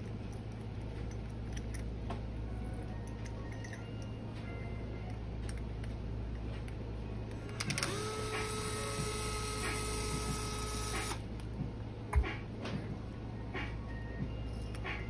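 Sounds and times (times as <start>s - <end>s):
electric screwdriver running: 7.6s - 11.2s.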